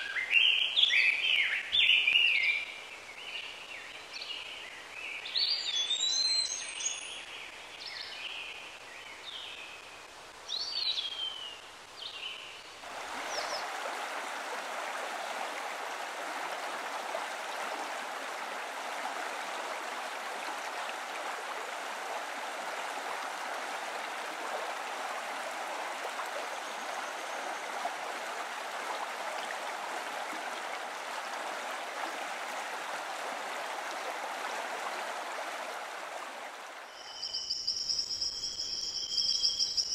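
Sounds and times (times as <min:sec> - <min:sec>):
running water rushing: 0:11.7 - 0:37.4
short bird chirps: 0:36.9 - 0:39.9.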